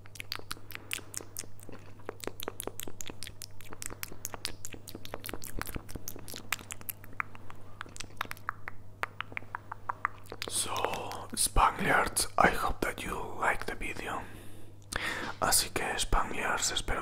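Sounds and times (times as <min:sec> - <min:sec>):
mouth clicks and pops: 0:00.0 - 0:11.4.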